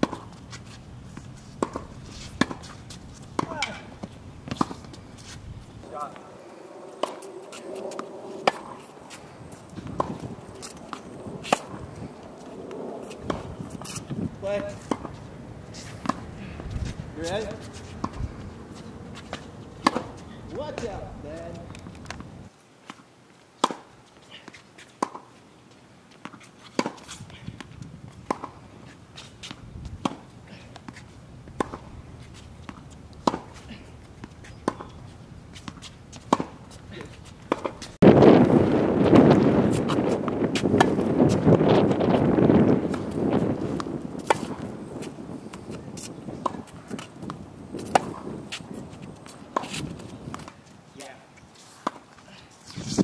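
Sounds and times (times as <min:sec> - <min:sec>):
tennis ball struck by racket: 0:00.0 - 0:00.3, 0:01.1 - 0:06.0, 0:07.0 - 0:09.2, 0:09.8 - 0:11.8, 0:13.0 - 0:15.2, 0:15.8 - 0:18.2, 0:19.2 - 0:20.9, 0:23.6 - 0:23.9, 0:25.0 - 0:25.3, 0:26.2 - 0:28.6, 0:29.4 - 0:31.9, 0:32.7 - 0:33.6, 0:34.2 - 0:35.0, 0:35.6 - 0:38.0, 0:39.1 - 0:50.6, 0:51.8 - 0:52.1
tennis ball bouncing on court: 0:00.0 - 0:00.4, 0:01.1 - 0:05.0, 0:07.0 - 0:11.8, 0:13.0 - 0:15.2, 0:16.0 - 0:22.3, 0:23.6 - 0:25.3, 0:26.1 - 0:28.6, 0:29.4 - 0:31.9, 0:32.6 - 0:38.0, 0:39.7 - 0:50.7, 0:51.8 - 0:52.2.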